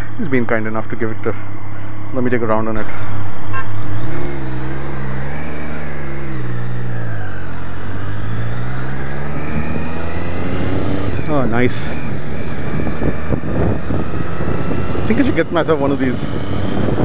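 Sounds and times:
motorcycle engine accelerating: 0.0 - 17.0
wind noise on microphone: 10.8 - 17.0.

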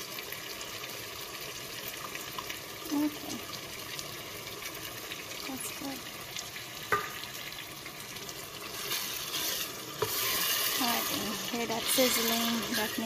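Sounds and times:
vegetables sizzling in a pot: 0.0 - 13.0
spatula stirring: 8.6 - 13.0.

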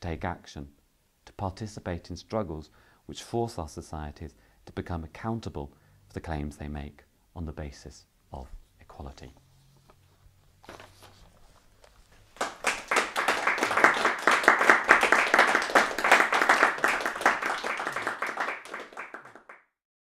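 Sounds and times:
faint paper rustling: 8.5 - 12.4
audience applause: 12.4 - 19.6.

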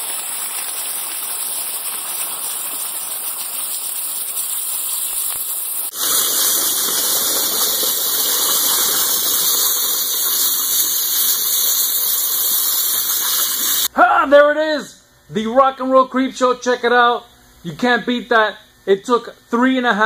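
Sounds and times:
water splashing in tank: 0.0 - 12.1
high-pressure water jet hissing: 0.0 - 13.9.

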